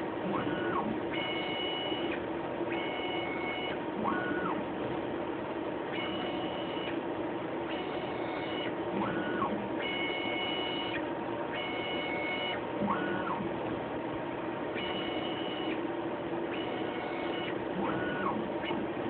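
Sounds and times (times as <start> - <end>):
steady machine hum: 0.0 - 19.0
robot motors whining: 0.3 - 4.6, 7.7 - 13.5, 16.5 - 19.0.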